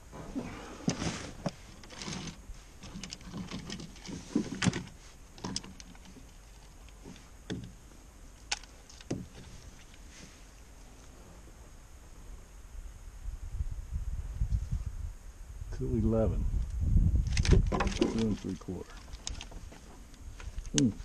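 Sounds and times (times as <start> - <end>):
knocks of fish and gear in canoe: 0.1 - 10.4, 17.3 - 21.0.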